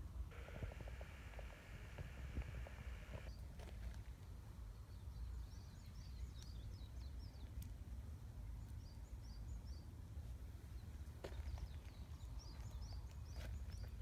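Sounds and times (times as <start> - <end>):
low steady rumble: 0.0 - 3.3.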